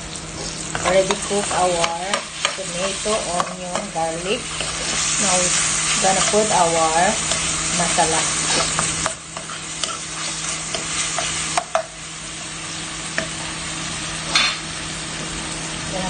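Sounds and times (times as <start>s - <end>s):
vegetables sizzling in oil: 0.0s - 16.0s
spatula scraping a pan: 0.4s - 11.9s.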